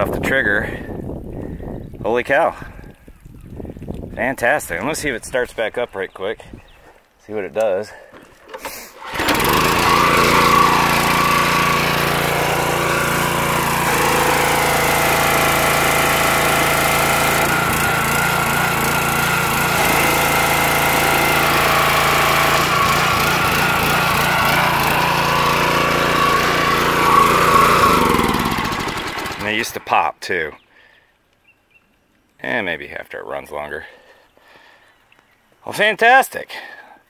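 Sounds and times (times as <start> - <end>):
pressure washer engine running: 8.5 - 29.7
water spraying from wand: 8.6 - 29.5.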